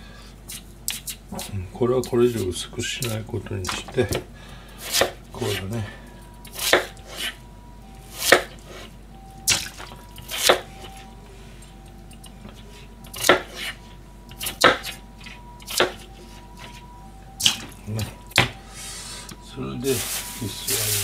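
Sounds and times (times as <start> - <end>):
knife chopping on plastic board: 6.5 - 7.0, 8.2 - 8.6, 13.1 - 13.8, 14.4 - 15.0, 15.6 - 16.1.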